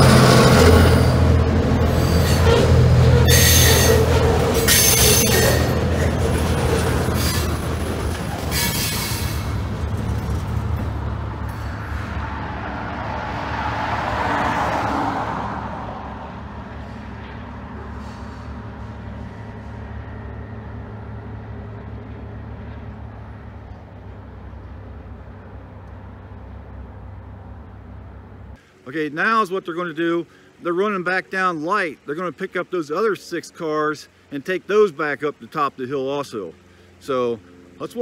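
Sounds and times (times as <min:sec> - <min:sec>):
train rushing noise: 0:00.0 - 0:27.6
freight train rumbling: 0:00.0 - 0:28.6.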